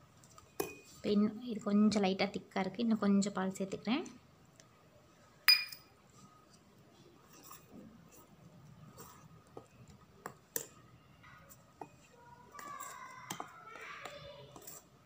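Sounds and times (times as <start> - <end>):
sharp metallic clink: 5.5 - 5.9
whisk scraping steel bowl: 11.8 - 15.0.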